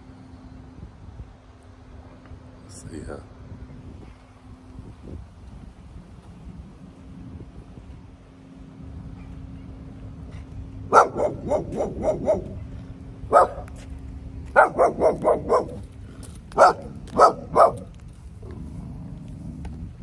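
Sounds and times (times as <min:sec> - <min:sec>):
dog barking: 0:10.9 - 0:12.6, 0:13.3 - 0:13.7, 0:14.6 - 0:15.8, 0:16.6 - 0:17.9.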